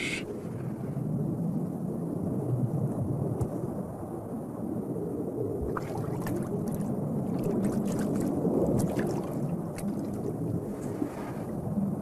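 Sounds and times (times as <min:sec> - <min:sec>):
underwater rushing and gurgling: 0:05.4 - 0:12.0.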